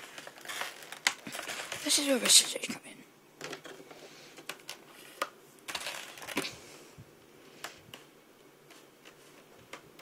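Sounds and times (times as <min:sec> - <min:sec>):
plastic crinkling: 0:00.0 - 0:02.7, 0:03.4 - 0:06.5.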